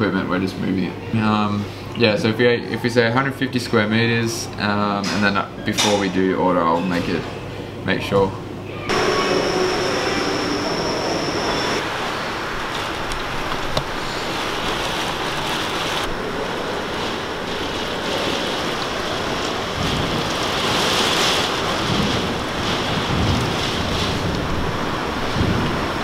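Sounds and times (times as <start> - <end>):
heavy rain: 8.9 - 26.0
strong wind gusts: 8.9 - 26.0.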